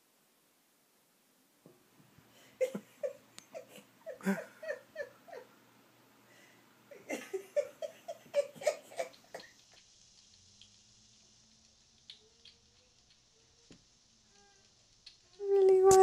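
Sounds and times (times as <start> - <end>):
person giggling: 2.6 - 5.5, 6.9 - 9.6.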